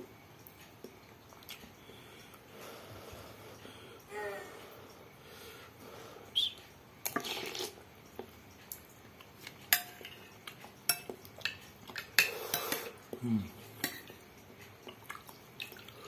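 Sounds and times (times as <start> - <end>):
cutlery clinking against glass bowl: 9.4 - 13.0, 13.8 - 14.2.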